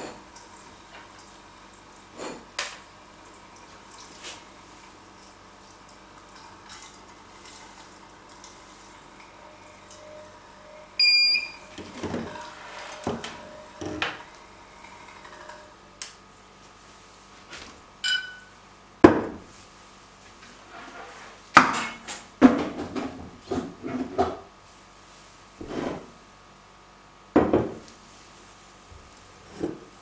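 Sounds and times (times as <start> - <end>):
short ringing tone: 9.5 - 13.8, 18.0 - 18.6.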